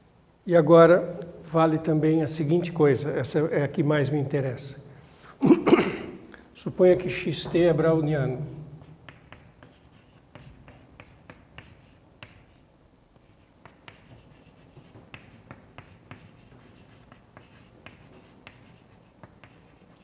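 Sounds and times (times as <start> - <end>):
chalk writing on a chalkboard: 8.8 - 20.0.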